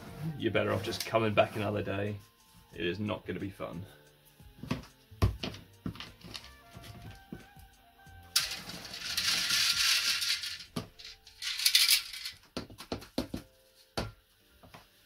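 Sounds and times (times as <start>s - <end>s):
gritty rattling through wire sieve: 8.4s - 12.4s.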